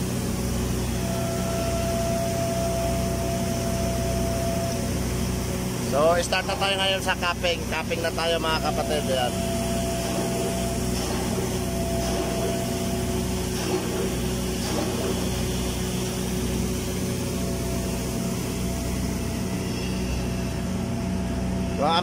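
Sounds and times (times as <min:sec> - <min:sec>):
welding machine hum: 0:00.0 - 0:22.0
steady high tones: 0:05.9 - 0:13.3.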